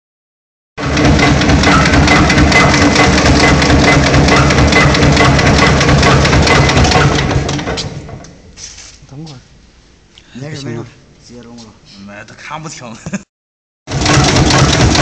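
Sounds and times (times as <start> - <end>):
metal mesh machine knocking rapidly: 0.8 - 8.2, 13.9 - 15.0.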